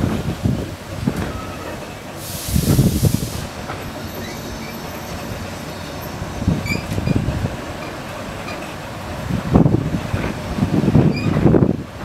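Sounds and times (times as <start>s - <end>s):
steam train on rails: 0.0s - 12.0s
steam hiss: 1.4s - 6.9s
wheels squealing: 2.6s - 8.8s, 11.0s - 11.5s.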